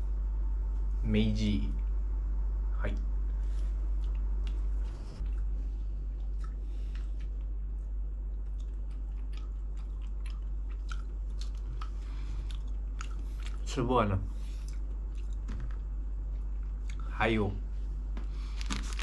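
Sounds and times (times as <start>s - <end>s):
steady low hum: 0.0s - 19.0s
person chewing food: 3.4s - 13.7s, 14.3s - 15.5s.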